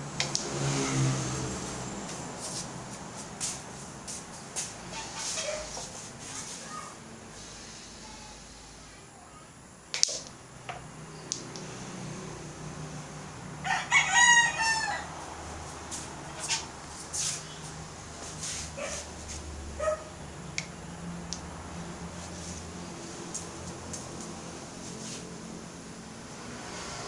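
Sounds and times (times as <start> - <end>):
rooster crowing: 13.5 - 15.6.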